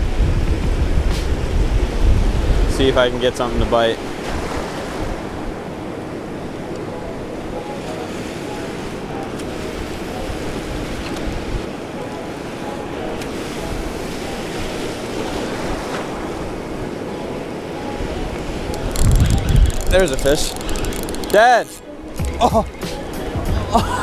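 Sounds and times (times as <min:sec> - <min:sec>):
wind on microphone: 0:00.0 - 0:12.3, 0:13.2 - 0:21.2
surf washing and foaming: 0:00.0 - 0:24.0.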